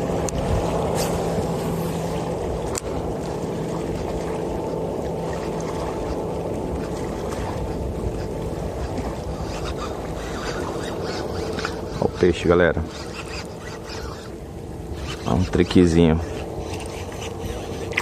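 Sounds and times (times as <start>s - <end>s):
rushing water: 0.0s - 18.0s
wind: 0.0s - 18.0s.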